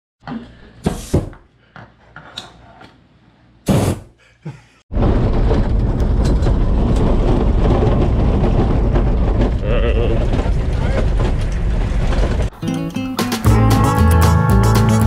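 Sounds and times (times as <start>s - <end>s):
road and wind noise: 5.3s - 12.5s.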